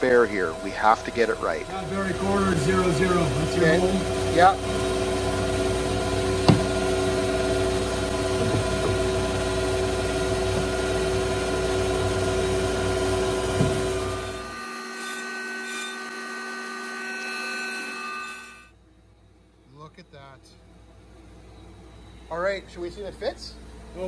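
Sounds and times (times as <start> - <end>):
router machinery droning: 0.0 - 18.7
thin high hum: 0.0 - 22.6
panel knocking on machine bed: 6.4 - 6.8.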